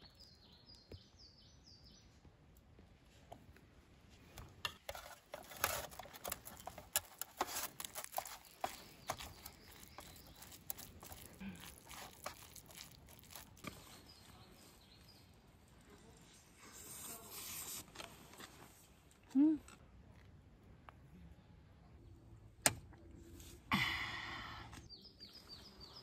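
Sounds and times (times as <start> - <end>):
metal spoon scraping a pot: 4.7 - 13.8.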